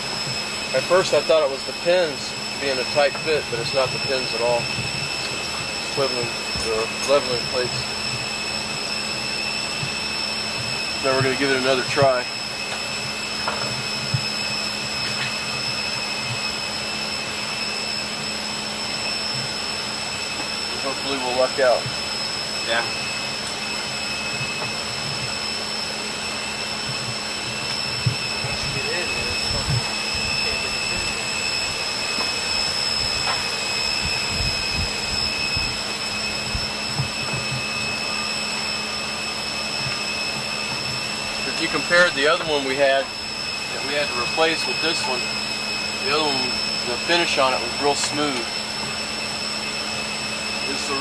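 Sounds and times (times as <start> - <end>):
high-pitched whine tones: 0.0 - 51.0
machinery roaring: 0.0 - 51.0
dull low thumps: 26.8 - 33.2.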